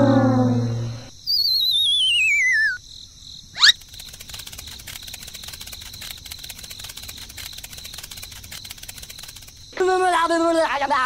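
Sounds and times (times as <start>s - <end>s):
warbling whistle sliding down: 0.0s - 2.8s
rapid cricket chirping: 0.0s - 11.0s.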